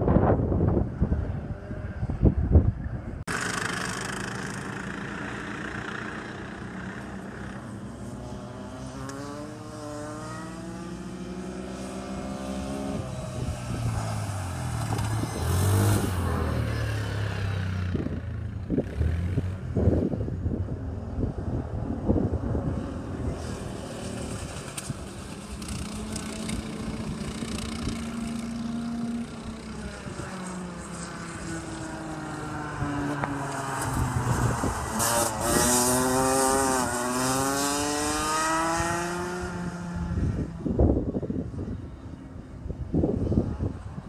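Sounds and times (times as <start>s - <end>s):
kart engines racing: 0.0s - 44.0s.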